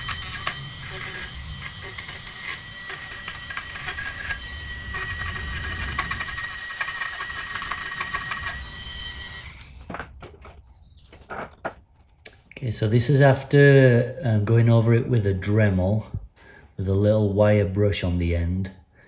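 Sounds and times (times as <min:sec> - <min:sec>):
wire brush scratching metal: 0:00.0 - 0:09.6
rotary tool whining: 0:00.0 - 0:12.2.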